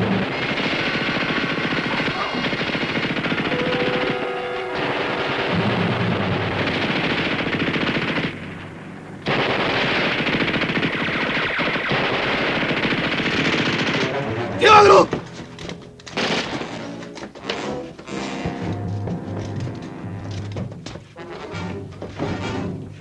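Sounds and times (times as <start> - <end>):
automatic weapons fire: 0.0 - 15.0, 16.1 - 17.0
man yelling: 14.6 - 15.1.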